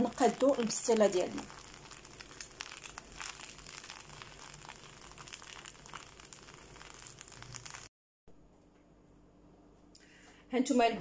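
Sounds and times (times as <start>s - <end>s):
noodles frying in a pan: 0.0s - 7.9s.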